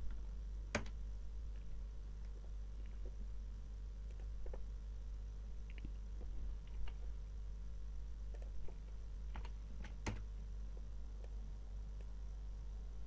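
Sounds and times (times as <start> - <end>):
low steady hum: 0.0 - 13.0
keyboard and mouse clicks: 0.7 - 1.0, 8.3 - 10.3.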